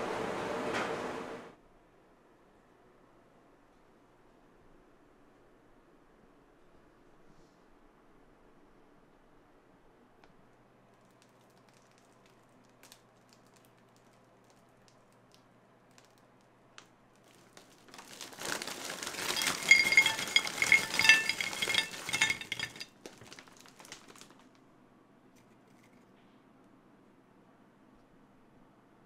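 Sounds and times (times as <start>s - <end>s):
plastic bag crinkling: 17.2s - 24.6s
fried dough clattering onto plate: 17.9s - 24.3s.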